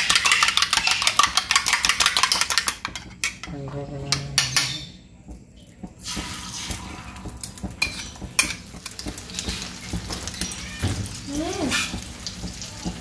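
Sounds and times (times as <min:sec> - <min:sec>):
metal spoon clinking on bowl: 0:00.0 - 0:03.4
hot oil sizzling: 0:06.0 - 0:13.0.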